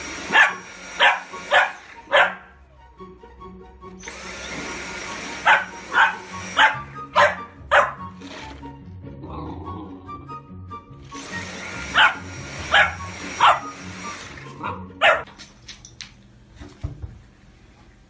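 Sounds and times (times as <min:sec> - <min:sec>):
puppy barking: 0:00.3 - 0:02.6, 0:05.4 - 0:08.2, 0:11.9 - 0:13.7, 0:14.6 - 0:15.3.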